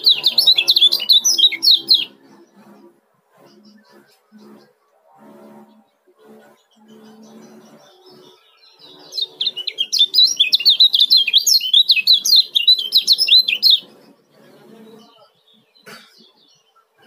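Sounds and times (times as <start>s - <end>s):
bird chirping rapidly: 0.0s - 2.8s, 6.4s - 14.3s.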